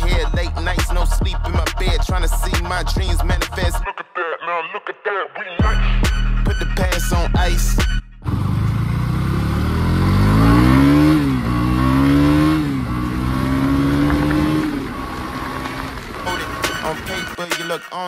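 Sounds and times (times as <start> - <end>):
hip-hop music with a beat: 0.0 - 8.2, 16.2 - 18.0
motorcycle engine accelerating: 8.2 - 17.4.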